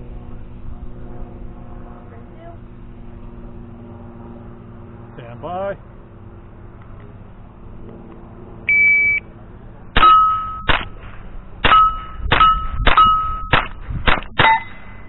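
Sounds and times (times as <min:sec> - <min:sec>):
shot timer beep: 0:08.7 - 0:09.2, 0:10.0 - 0:10.8, 0:11.6 - 0:13.6, 0:14.4 - 0:15.0
steel target plates ringing: 0:10.0 - 0:10.8, 0:11.6 - 0:13.7, 0:14.4 - 0:15.0
rifle shots: 0:10.0 - 0:15.0.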